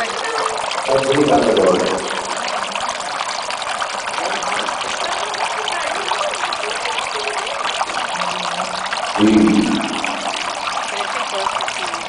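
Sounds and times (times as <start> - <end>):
fountain water trickling: 0.0 - 12.0
faint voices: 4.2 - 12.0.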